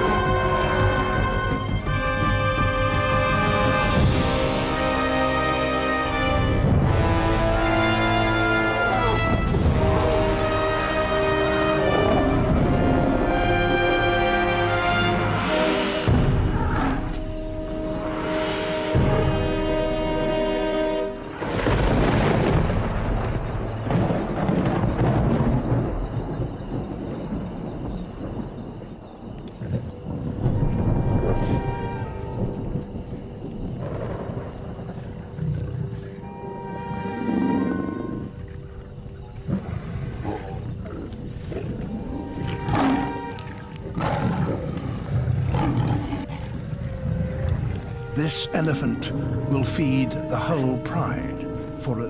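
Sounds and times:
background music: 0.0s - 26.4s, 29.0s - 52.0s
low rumbling commotion of animals: 21.3s - 48.2s
lions growling and snarling: 37.2s - 47.8s.

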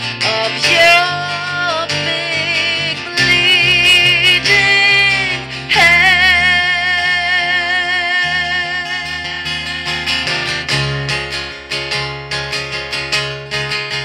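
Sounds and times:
strummed acoustic guitar: 0.0s - 14.0s
woman singing with vibrato: 0.1s - 10.7s.

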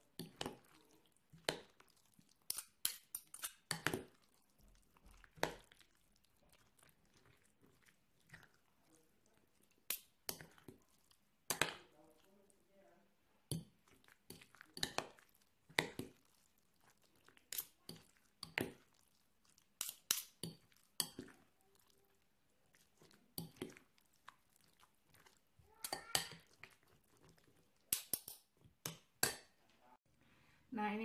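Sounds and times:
soft squelching: 0.0s - 30.2s
metal spoon clinking glass bowl: 19.8s - 21.3s.

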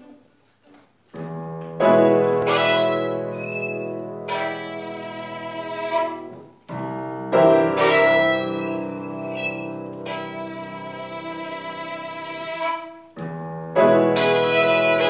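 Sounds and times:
piano: 1.1s - 15.0s
violin: 2.3s - 6.6s, 7.5s - 13.2s, 14.1s - 15.0s.

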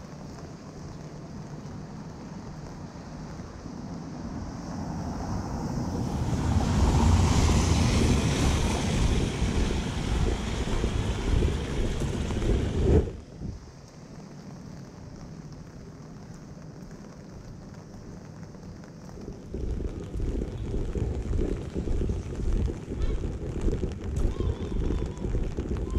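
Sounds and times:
wind buffeting microphone: 3.8s - 13.8s, 18.8s - 25.9s.

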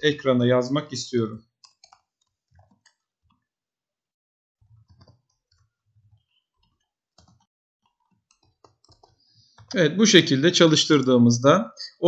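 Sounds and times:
computer keyboard keystrokes: 1.6s - 3.0s, 4.8s - 5.6s, 6.6s - 7.4s, 8.3s - 9.7s.

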